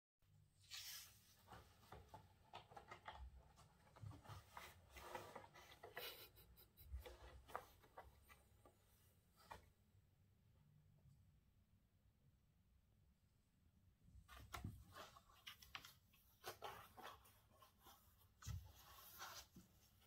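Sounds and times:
cat scratching cardboard: 1.5s - 9.6s, 14.3s - 20.0s.

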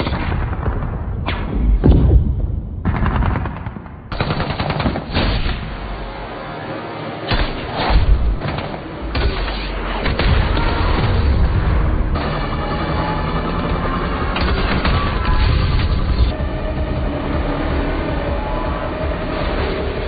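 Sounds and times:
heavy explosions: 0.0s - 6.1s, 7.3s - 20.0s
rapid automatic gunfire: 2.8s - 5.8s, 7.3s - 16.3s.

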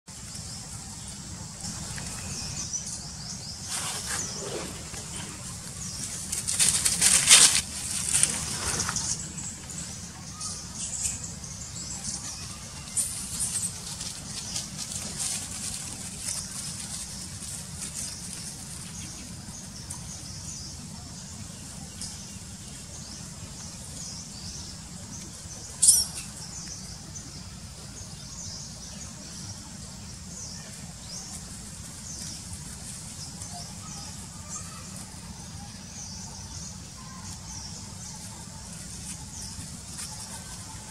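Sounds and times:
small birds chirping: 0.1s - 40.9s.

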